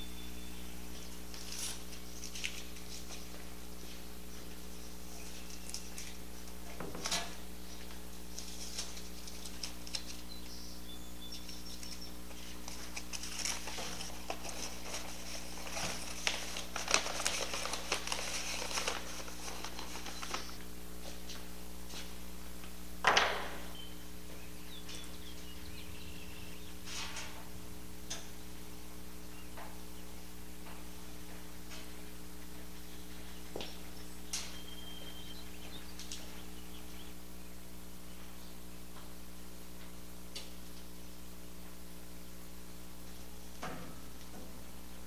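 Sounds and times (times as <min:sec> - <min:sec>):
steady background hum: 0:00.0 - 0:45.0
paper rustling and crinkling: 0:01.2 - 0:04.1, 0:05.2 - 0:10.3, 0:11.5 - 0:21.2.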